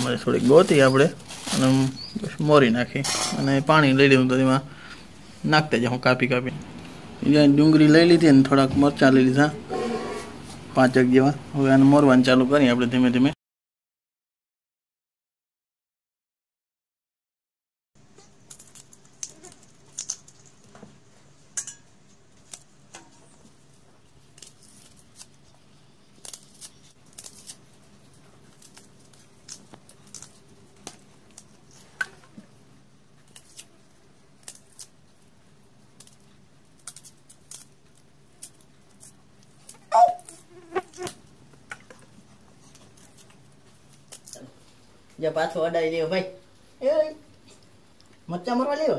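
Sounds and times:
knife peeling onion skins: 0:00.0 - 0:02.4, 0:18.1 - 0:20.7, 0:21.6 - 0:32.3, 0:33.1 - 0:44.6.

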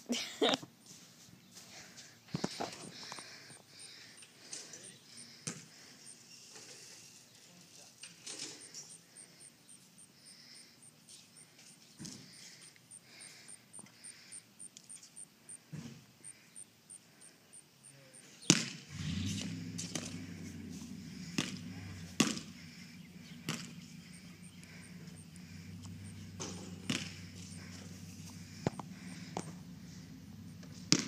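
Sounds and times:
insect chirping: 0:02.3 - 0:07.3, 0:08.0 - 0:31.0
low steady hum: 0:18.9 - 0:31.0.

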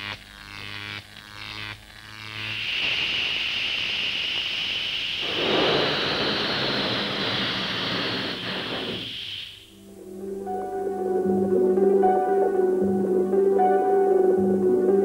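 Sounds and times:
steady high hiss: 0:01.0 - 0:11.0
rushing whoosh: 0:05.2 - 0:09.7.

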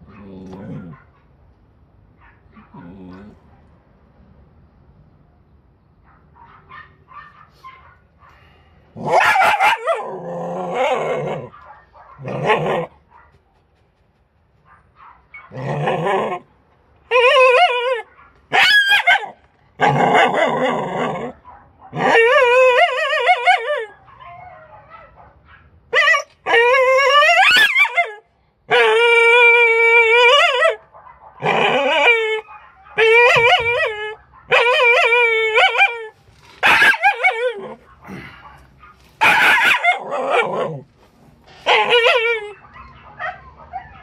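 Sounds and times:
dog whining: 0:17.1 - 0:21.3, 0:33.0 - 0:38.4, 0:41.5 - 0:44.0.

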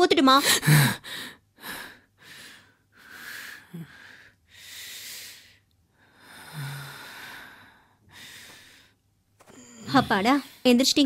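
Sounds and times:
man breathing heavily: 0:01.0 - 0:10.6.

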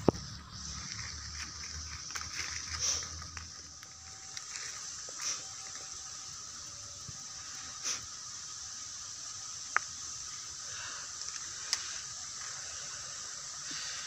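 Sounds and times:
fingers scraping in soil and leaves: 0:00.0 - 0:06.0
steady high hiss: 0:00.0 - 0:14.0.

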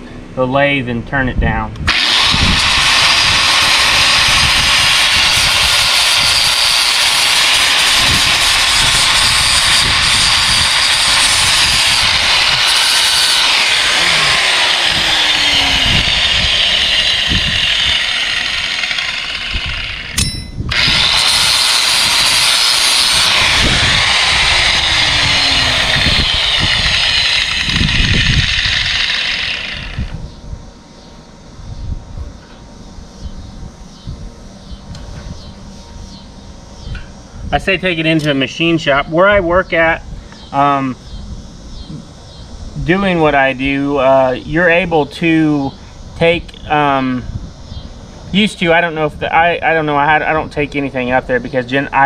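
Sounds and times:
electric grinder grinding steel: 0:01.9 - 0:30.2.

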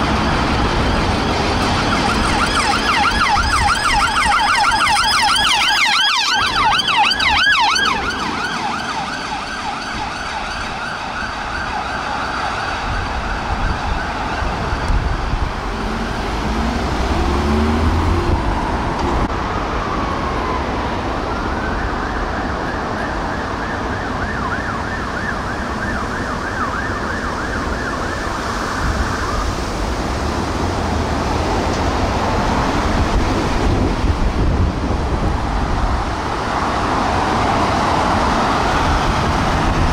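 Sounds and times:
faint warbling siren: 0:00.0 - 0:30.0
warbling yelp siren: 0:00.0 - 0:30.1
road traffic: 0:00.0 - 0:39.9.

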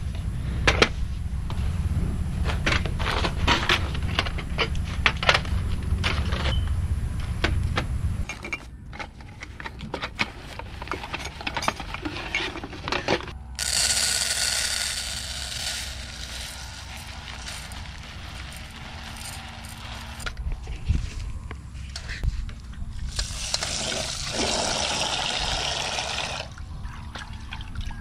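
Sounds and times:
rice pouring into pot: 0:13.6 - 0:20.2.

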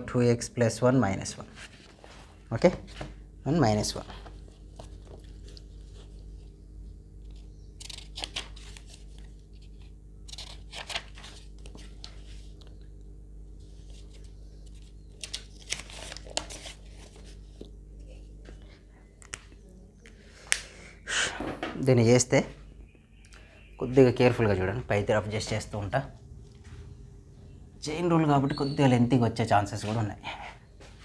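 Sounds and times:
low electrical hum: 0:00.0 - 0:31.0
paper scratching and rustling: 0:07.2 - 0:12.8, 0:13.6 - 0:18.3.

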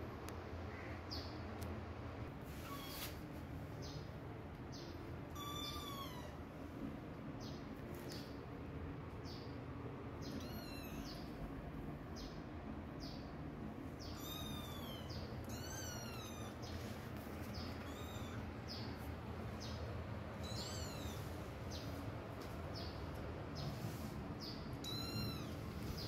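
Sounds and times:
low background hum: 0:00.0 - 0:26.0
kittens mewing: 0:05.3 - 0:06.5, 0:10.2 - 0:11.3, 0:14.0 - 0:16.7, 0:17.5 - 0:19.0, 0:20.3 - 0:21.4, 0:24.8 - 0:26.0.

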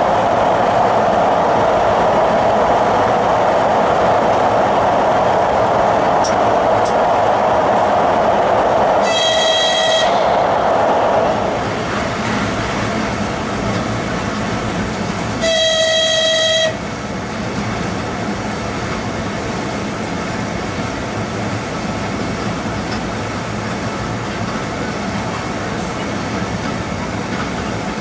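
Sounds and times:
train rumbling on track: 0:00.0 - 0:28.0
train horn blast: 0:09.0 - 0:10.4, 0:15.4 - 0:16.8.

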